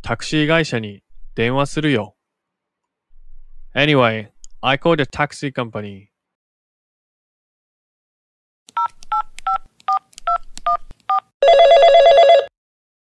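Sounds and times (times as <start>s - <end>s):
telephone keypad tones: 8.8s - 12.5s
electronic telephone ring: 11.4s - 12.5s.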